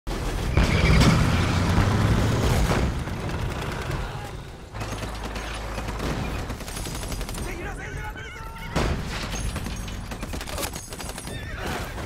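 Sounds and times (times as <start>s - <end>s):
explosions: 0.1s - 4.1s
tanks rumbling: 0.1s - 12.0s.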